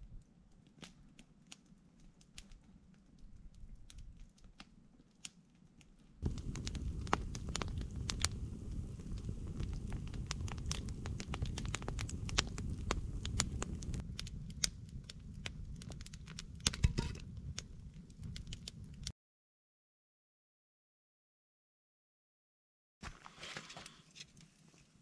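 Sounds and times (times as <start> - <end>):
campfire crackling and popping: 0.3 - 19.1.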